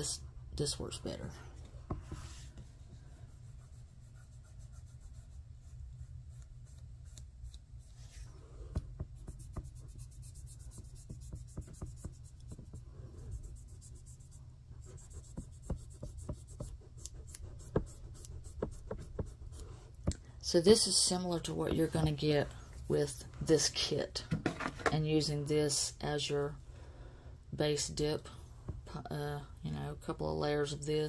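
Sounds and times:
steady low hum: 0:00.0 - 0:31.0
brush strokes on nail: 0:09.2 - 0:19.8.

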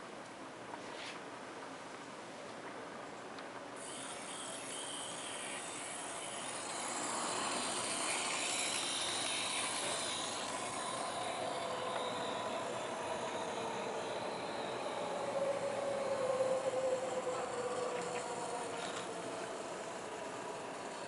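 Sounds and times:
small electric motor whining: 0:03.8 - 0:21.0.

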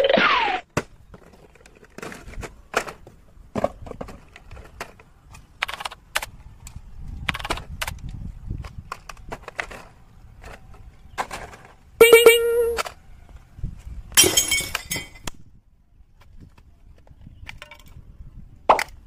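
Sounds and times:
hands handling cardboard and plastic: 0:06.6 - 0:11.8.

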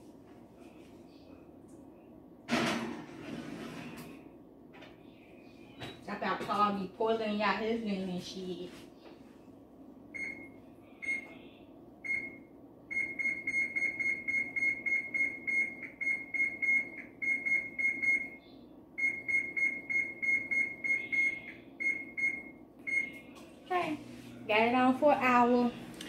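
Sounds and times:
oven control panel beeping: 0:10.2 - 0:11.2, 0:12.0 - 0:18.4, 0:19.0 - 0:23.1.

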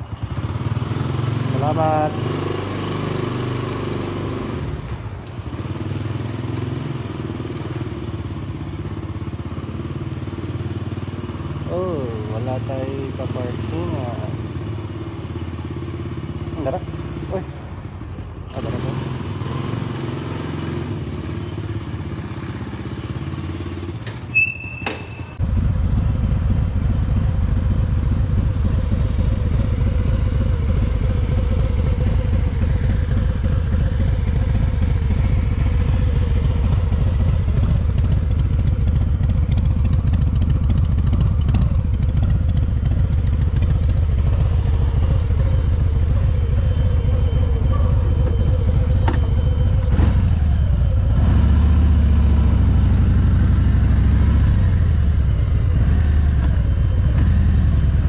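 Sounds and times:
motorcycle engine running: 0:00.0 - 0:58.0
short beep: 0:24.3 - 0:25.4.

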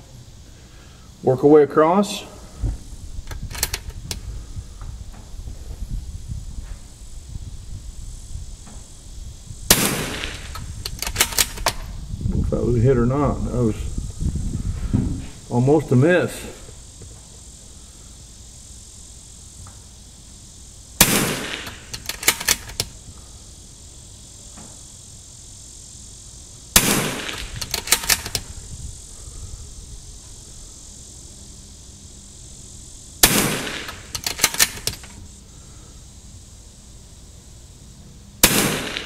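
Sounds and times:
rifle bolt metallic clicks: 0:03.3 - 0:04.2, 0:10.2 - 0:11.9, 0:21.2 - 0:22.9, 0:27.2 - 0:28.5, 0:33.6 - 0:35.2
rifle shots: 0:09.7 - 0:11.8, 0:21.0 - 0:22.9, 0:26.8 - 0:28.4, 0:33.2 - 0:35.1, 0:38.4 - 0:39.0.

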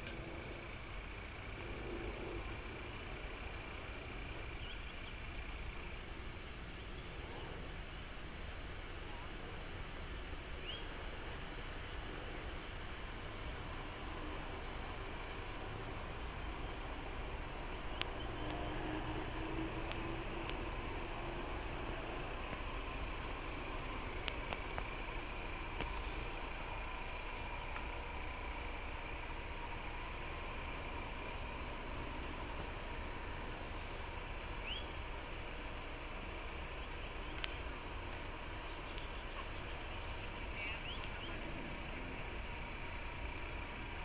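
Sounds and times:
high-pitched insect buzz: 0:12.9 - 0:44.0.

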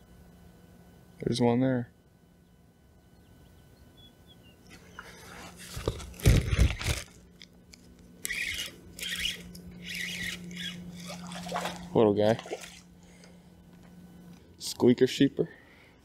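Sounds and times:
fishing reel cranking: 0:08.2 - 0:11.2.

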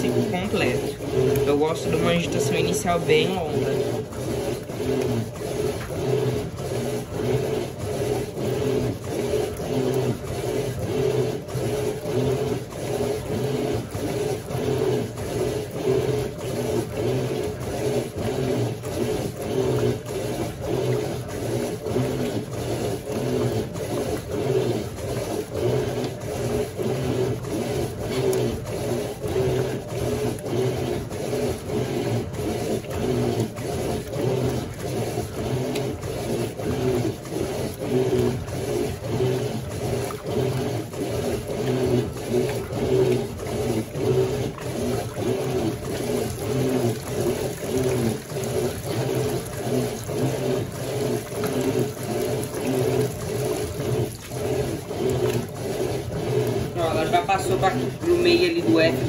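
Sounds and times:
agitator churning water: 0:00.0 - 0:59.0
washing machine motor humming: 0:00.0 - 0:59.0.

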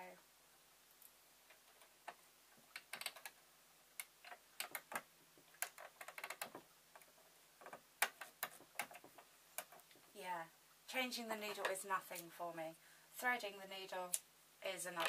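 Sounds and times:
small clicks and taps of metal parts: 0:01.0 - 0:03.4, 0:04.0 - 0:10.1.

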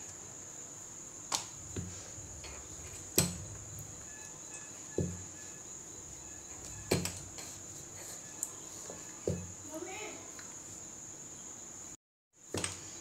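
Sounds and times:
high-pitched whine: 0:00.0 - 0:09.8.

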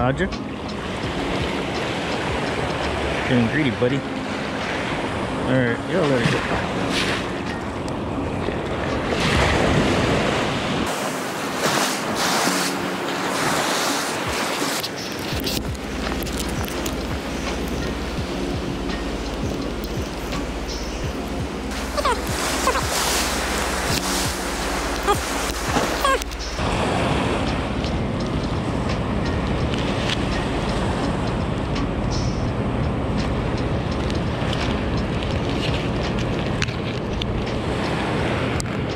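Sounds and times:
breaking surf: 0:00.0 - 0:38.9
wind rumbling on microphone: 0:00.0 - 0:38.9
small waves breaking on sand: 0:08.2 - 0:16.6, 0:21.7 - 0:27.8.

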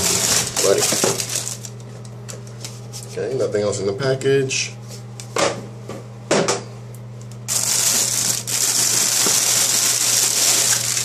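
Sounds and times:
plastic bag crinkling: 0:00.0 - 0:02.0, 0:07.5 - 0:11.0.

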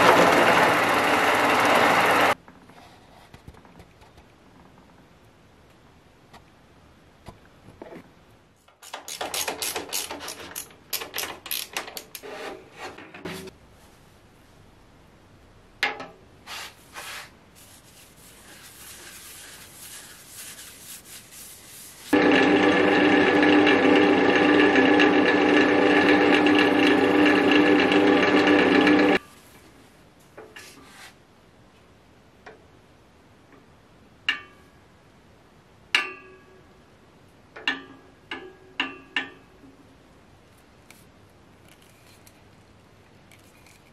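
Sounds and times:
wood lathe running: 0:00.0 - 0:02.4, 0:22.2 - 0:29.2
paper towel rubbing: 0:16.5 - 0:22.2.

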